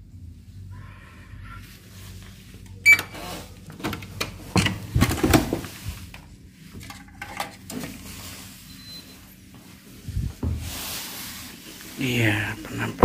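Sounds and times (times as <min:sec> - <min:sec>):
keycard lock beep: 0:02.8 - 0:03.2.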